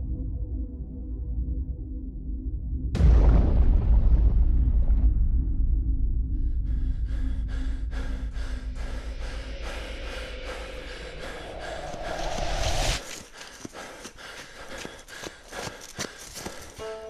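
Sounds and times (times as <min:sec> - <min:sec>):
deep rumbling drone: 0:00.0 - 0:13.2
rasping breath-like pulses: 0:06.5 - 0:16.8.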